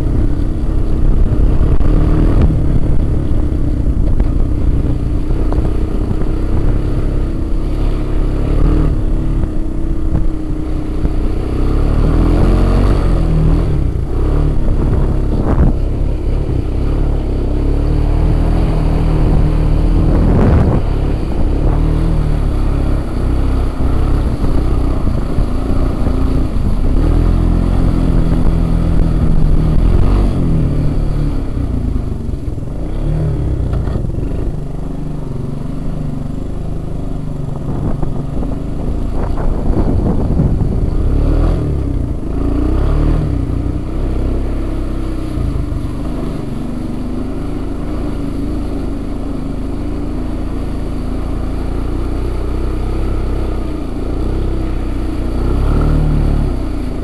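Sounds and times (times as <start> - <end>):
water splashing: 0.0 - 34.5
atv engine revving: 0.0 - 57.0.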